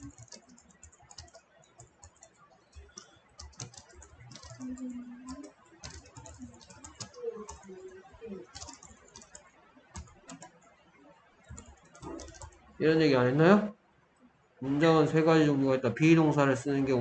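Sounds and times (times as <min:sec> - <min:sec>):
computer keyboard typing: 0:00.0 - 0:12.8.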